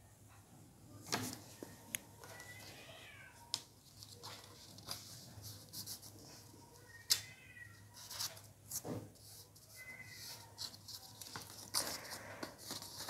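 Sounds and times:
cat meowing faintly: 1.6 - 3.6, 6.5 - 8.2, 9.6 - 10.8
paper being folded: 3.6 - 7.2, 8.0 - 13.0.

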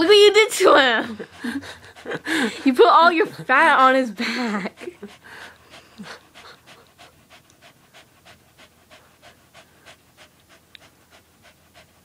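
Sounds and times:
small dog panting: 0.0 - 12.0.

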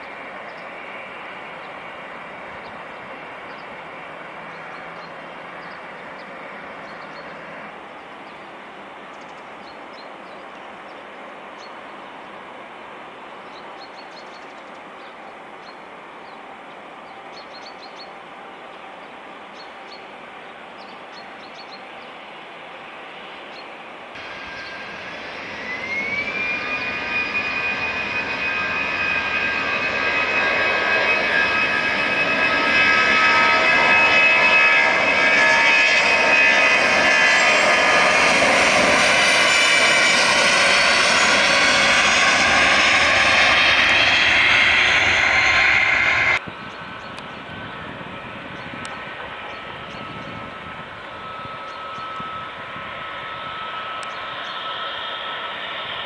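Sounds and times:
distant jet airliner rushing: 24.2 - 56.0
jet engines spooling up: 24.2 - 56.0.

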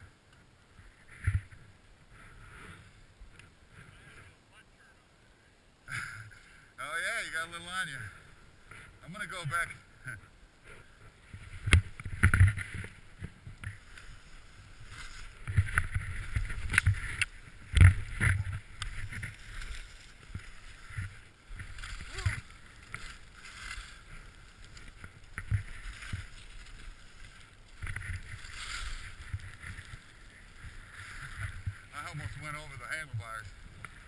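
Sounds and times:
skis swishing through snow: 12.4 - 34.0.

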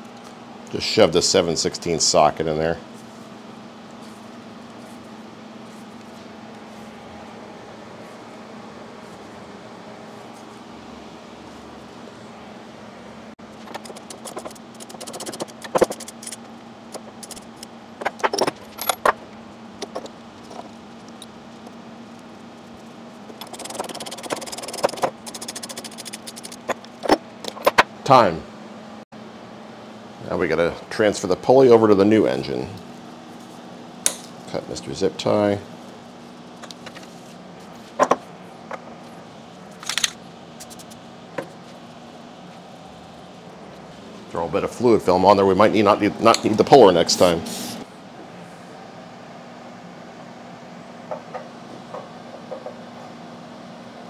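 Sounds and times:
rapid clicks: 13.6 - 18.2, 23.3 - 26.9.

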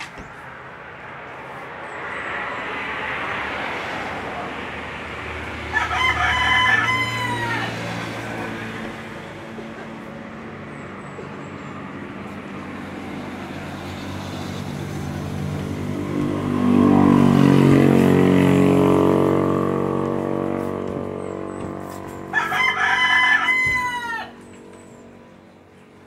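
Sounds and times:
vehicle engine passing by: 0.0 - 26.0
rooster crowing: 5.6 - 8.6, 21.8 - 24.7.

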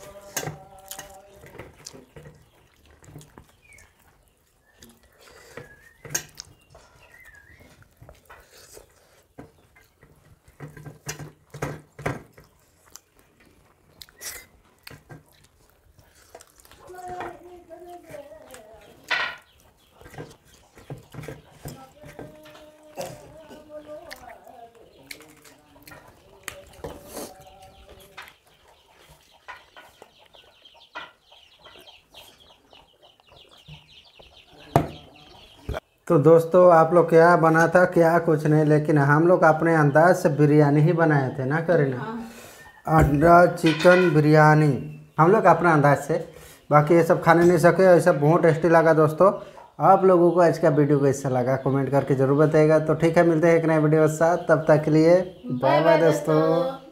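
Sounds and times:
chicken clucking: 0.0 - 11.4, 12.3 - 36.0, 37.2 - 56.9
fingers working food on steel plates: 0.0 - 30.2
person chewing: 0.1 - 10.7, 12.2 - 17.2, 22.6 - 30.4.

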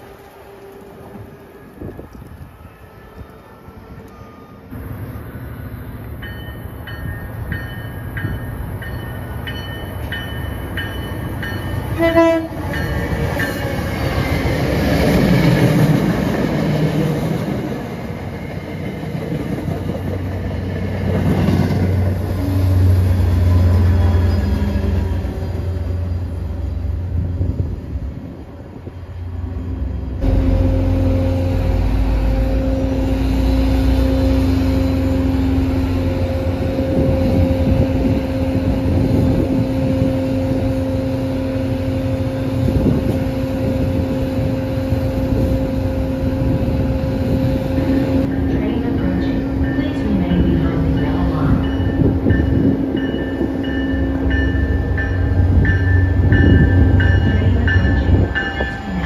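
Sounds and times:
train wheels rushing on rails: 0.0 - 59.0
train horn short blasts: 11.9 - 12.8.

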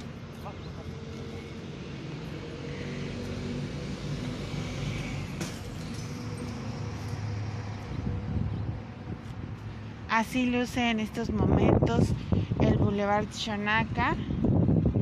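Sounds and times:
engine running: 0.0 - 11.0
traffic passing: 0.0 - 15.0.

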